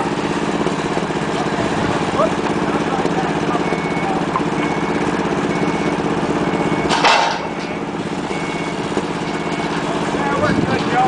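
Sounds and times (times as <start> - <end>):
diesel engine running: 0.0 - 11.0
backup alarm beeps: 3.5 - 9.8.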